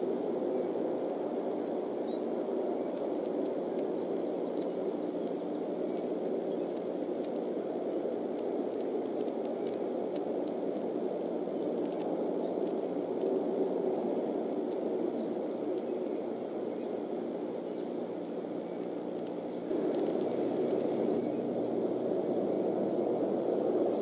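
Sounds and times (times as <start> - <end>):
steady rushing noise: 0.0 - 24.0
faint ticks: 1.0 - 16.4, 17.7 - 21.4.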